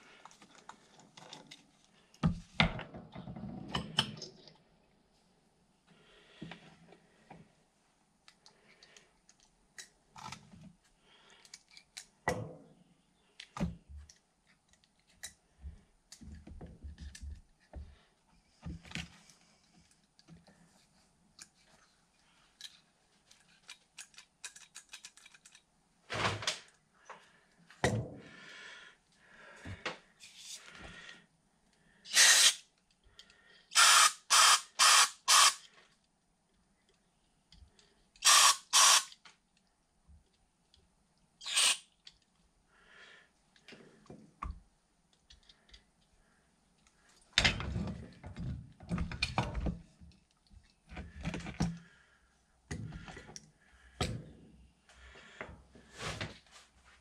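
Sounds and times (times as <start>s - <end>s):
small metal parts clattering: 22.6s - 25.6s.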